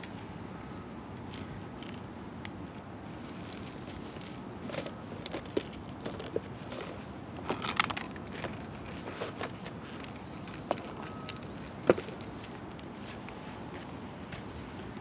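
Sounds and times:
cats chewing dry kibble: 0:03.3 - 0:13.6
rattling clatter: 0:06.1 - 0:08.5.

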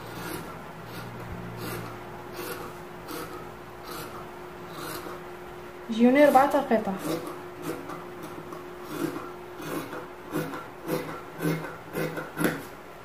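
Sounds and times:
scissors snipping fabric: 0:07.0 - 0:12.7.

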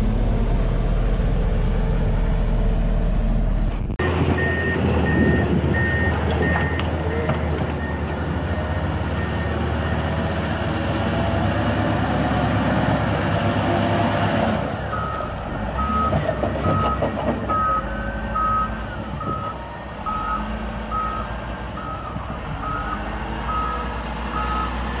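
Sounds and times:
diesel engine working: 0:00.0 - 0:25.0
reversing alarm beeping: 0:04.4 - 0:10.3, 0:14.9 - 0:24.8.

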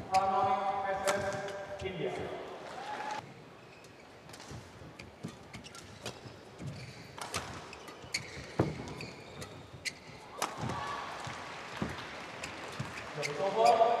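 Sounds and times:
shoes squeaking on court: 0:00.0 - 0:01.9, 0:03.6 - 0:14.0.

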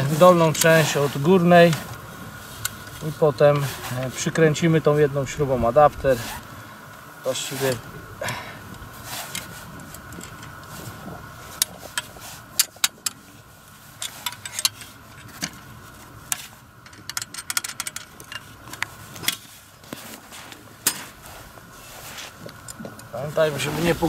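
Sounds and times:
metal spanners clicking: 0:16.3 - 0:19.4.

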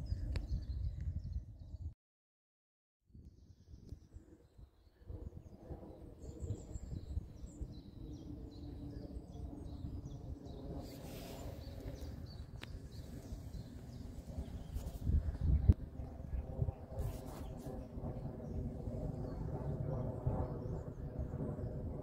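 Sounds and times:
small birds chirping: 0:03.4 - 0:15.8
jet engines rumbling overhead: 0:04.1 - 0:22.0.

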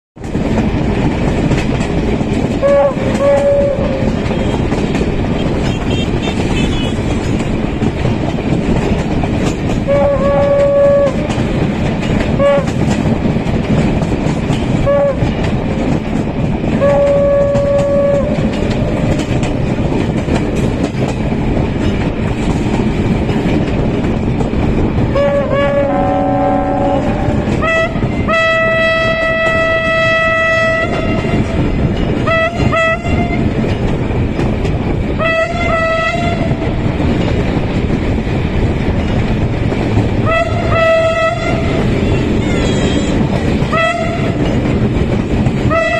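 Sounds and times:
train wheels rumbling on rail: 0:00.2 - 0:45.9
train horn blasts: 0:02.5 - 0:07.2, 0:09.8 - 0:11.4, 0:12.3 - 0:13.0, 0:14.7 - 0:15.5, 0:16.7 - 0:19.2, 0:25.1 - 0:33.5, 0:35.2 - 0:36.8, 0:40.2 - 0:44.6, 0:45.7 - 0:45.9
train horn chord: 0:02.6 - 0:04.7, 0:05.3 - 0:07.1, 0:09.8 - 0:11.4, 0:12.3 - 0:12.8, 0:14.8 - 0:15.3, 0:16.8 - 0:19.1, 0:25.1 - 0:33.5, 0:35.2 - 0:36.7, 0:40.2 - 0:43.1, 0:43.7 - 0:44.4, 0:45.7 - 0:45.9.

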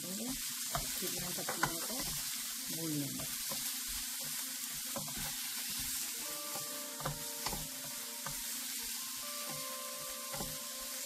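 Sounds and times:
vegetables sizzling in oil: 0:00.0 - 0:11.0
wooden spatula knocking on pan: 0:00.7 - 0:02.2, 0:06.5 - 0:08.5.

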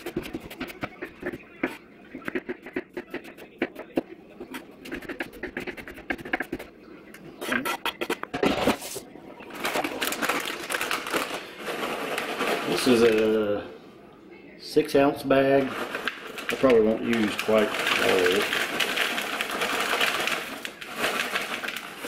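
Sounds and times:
scraping and rustling onion: 0:00.0 - 0:03.4, 0:08.4 - 0:13.6, 0:15.2 - 0:22.0.

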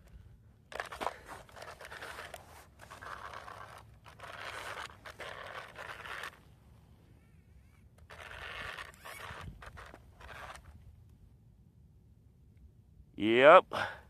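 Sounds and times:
scraping and rustling: 0:00.7 - 0:06.6, 0:08.0 - 0:10.8.

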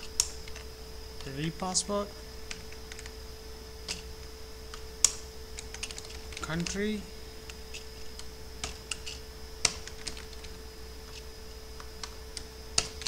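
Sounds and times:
faint electrical hum: 0:00.0 - 0:13.0
keyboard typing: 0:02.5 - 0:03.2, 0:04.7 - 0:11.2.

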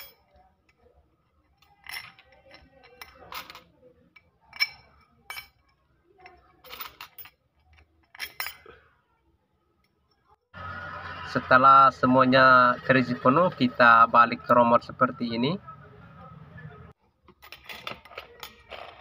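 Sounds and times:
metal spokes clinking: 0:00.0 - 0:08.8.

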